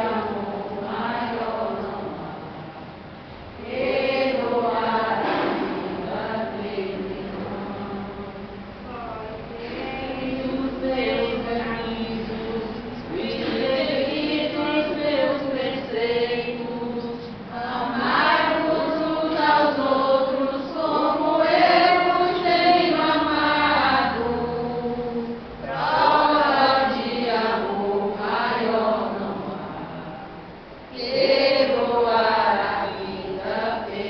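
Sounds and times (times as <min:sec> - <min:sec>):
congregation singing a hymn: 0:00.0 - 0:34.0.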